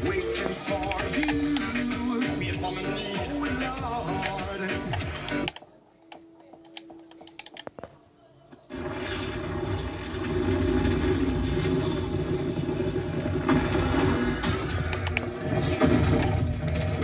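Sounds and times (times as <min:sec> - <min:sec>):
clicks: 0:00.4 - 0:02.1, 0:04.0 - 0:08.0, 0:14.4 - 0:15.3
low rumble with sustained tones: 0:08.8 - 0:17.0.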